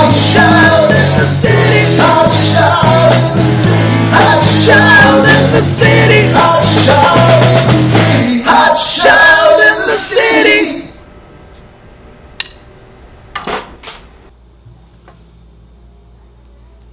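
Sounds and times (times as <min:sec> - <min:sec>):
rock band playing: 0:00.0 - 0:08.3.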